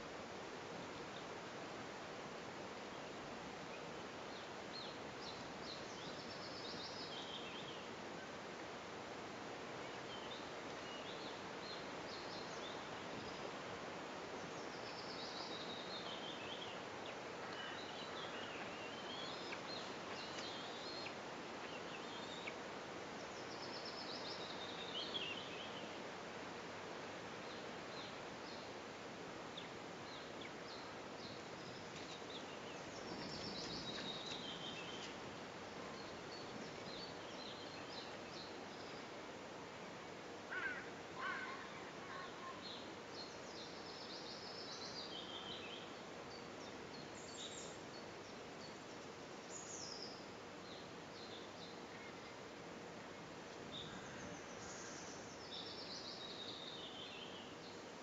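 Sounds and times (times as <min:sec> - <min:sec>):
outdoor background hiss: 0:00.0 - 0:58.0
songbird singing: 0:00.0 - 0:58.0
faint bird chirps: 0:40.5 - 0:52.5, 0:53.7 - 0:57.8.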